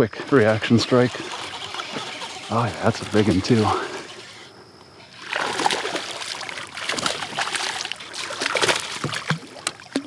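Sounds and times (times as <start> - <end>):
fish splashing at surface: 5.2 - 10.0.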